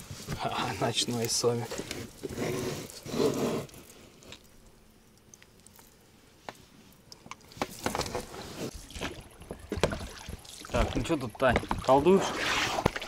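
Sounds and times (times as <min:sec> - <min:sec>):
wet fish squelching on rubber: 0:07.4 - 0:13.0.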